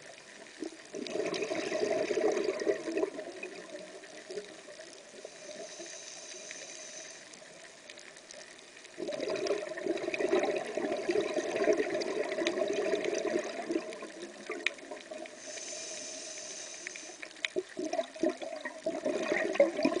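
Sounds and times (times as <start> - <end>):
exhaled bubbles underwater: 0.0 - 5.8, 8.9 - 15.6, 17.3 - 20.0
regulator inhaling hiss: 5.0 - 7.7, 15.2 - 17.6.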